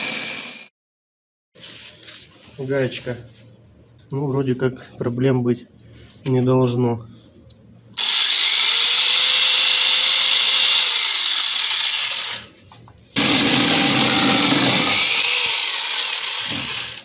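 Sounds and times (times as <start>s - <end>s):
chainsaw cutting wood: 0.0s - 0.7s, 8.0s - 12.4s, 13.2s - 17.0s.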